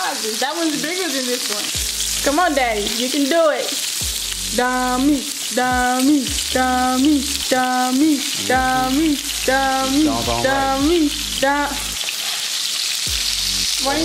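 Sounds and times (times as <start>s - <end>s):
burger patties sizzling on griddle: 0.0s - 14.0s
background music loop: 1.7s - 3.0s, 4.0s - 12.0s, 13.0s - 14.0s
spatulas scraping griddle: 12.0s - 12.7s.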